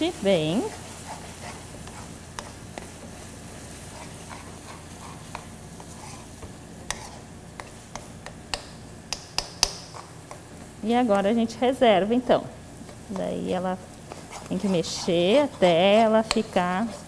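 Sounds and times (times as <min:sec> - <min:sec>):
caramel sizzling: 0:00.0 - 0:17.0
spatula tapping pan: 0:04.0 - 0:10.4, 0:14.1 - 0:17.0.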